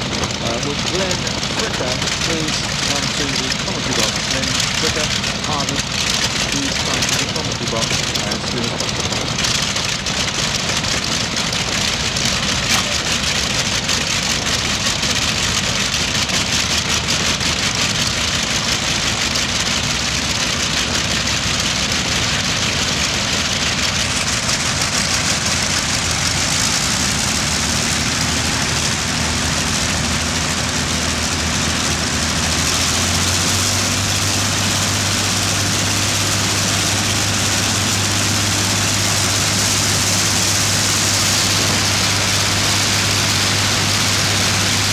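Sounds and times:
aircraft piston engines droning: 0.0 - 44.9.

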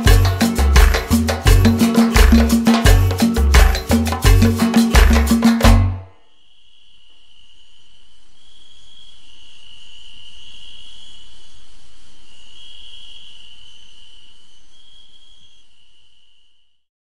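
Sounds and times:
crickets trilling: 0.0 - 16.8.

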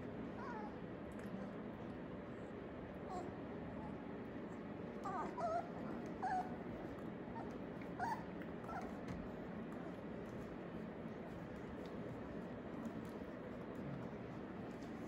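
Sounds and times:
puppies yipping and whimpering: 5.0 - 9.1.

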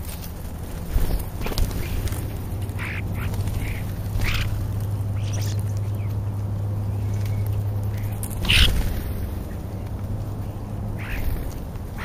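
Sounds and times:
steady low hum: 0.0 - 12.0
starlings harsh calls: 0.9 - 6.2, 7.0 - 9.6, 10.9 - 12.0.

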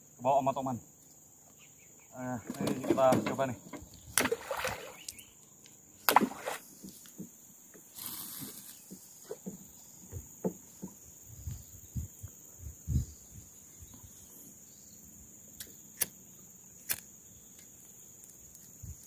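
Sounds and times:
high insect drone: 0.0 - 19.0.

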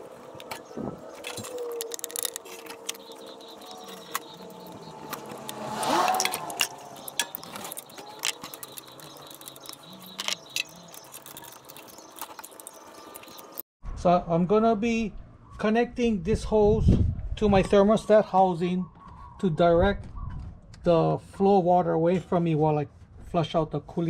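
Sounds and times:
noise with sliding pitch: 0.0 - 13.6
metal hand tools clinking: 1.2 - 13.6.

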